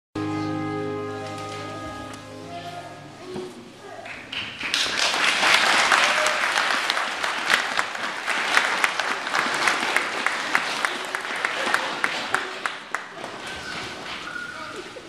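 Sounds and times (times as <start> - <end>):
audience applauding in echoing church: 4.0 - 14.7.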